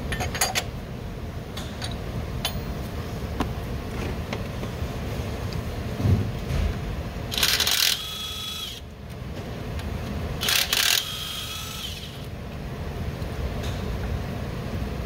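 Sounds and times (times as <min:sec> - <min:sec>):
power tool bursts with whine: 0:07.4 - 0:08.8, 0:10.4 - 0:12.3.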